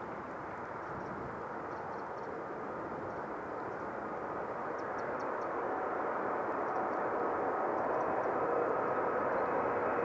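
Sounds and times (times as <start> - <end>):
jet engines roaring: 0.0 - 10.0.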